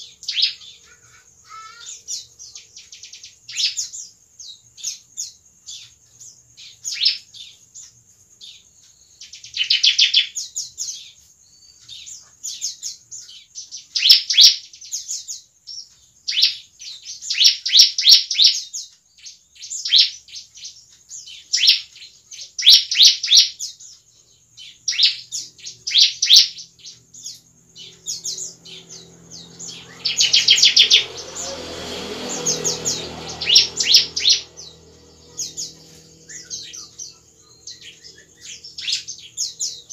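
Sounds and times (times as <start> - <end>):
bird chirps and trills: 0.0 - 39.9.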